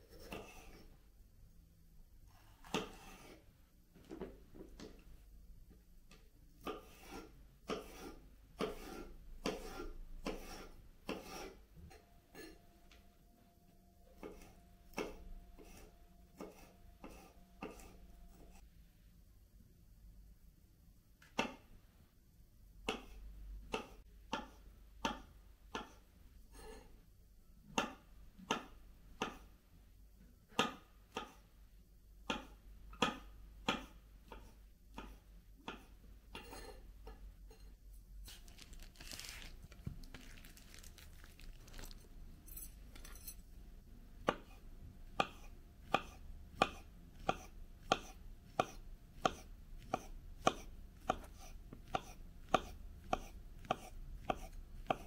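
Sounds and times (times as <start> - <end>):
knife chopping on cutting board: 2.6 - 3.4, 6.6 - 11.5, 14.2 - 18.6, 32.2 - 36.6, 44.2 - 44.6, 45.2 - 55.0.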